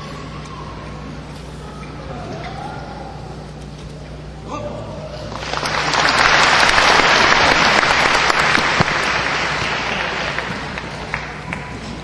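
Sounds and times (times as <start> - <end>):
audience applauding: 5.3 - 11.9.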